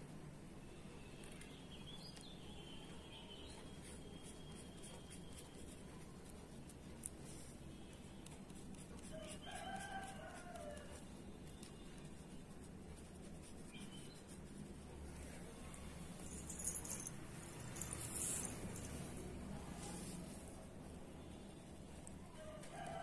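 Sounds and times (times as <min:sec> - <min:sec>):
marker scratching on paper: 0:03.5 - 0:15.6
rooster crowing: 0:09.2 - 0:11.0, 0:22.3 - 0:23.0
small bird chirping: 0:13.6 - 0:14.4.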